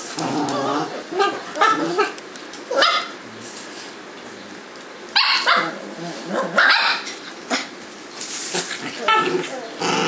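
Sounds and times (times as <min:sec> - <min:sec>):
puppies barking: 0:00.6 - 0:03.2, 0:05.1 - 0:07.8.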